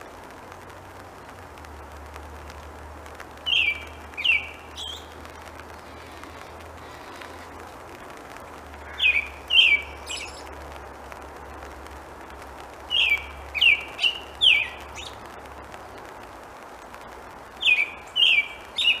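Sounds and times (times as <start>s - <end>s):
robin singing whistled phrases: 3.4s - 5.2s, 8.9s - 10.5s, 12.9s - 15.2s, 17.6s - 19.0s.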